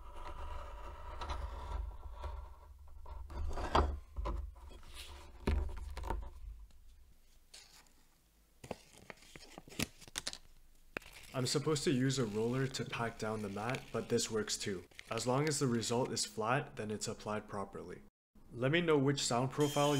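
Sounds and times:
foil mat crinkling and scraping: 11.0 - 15.4.

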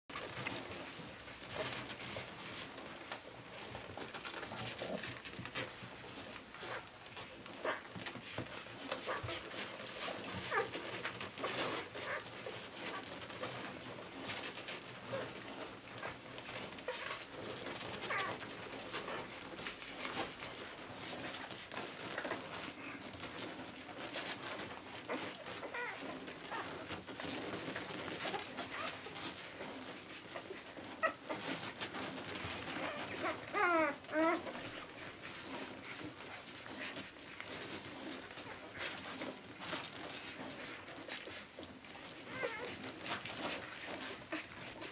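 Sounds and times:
puppies suckling: 0.1 - 44.9
puppy squeaks and whimpers: 8.8 - 13.1, 16.8 - 19.3, 25.0 - 26.9, 30.3 - 31.6, 32.4 - 34.7, 42.0 - 44.9.

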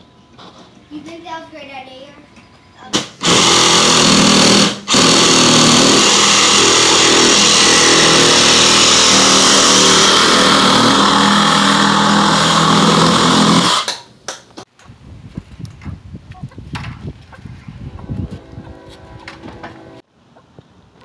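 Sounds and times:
reciprocating saw cutting plastic pipe: 3.0 - 14.1.

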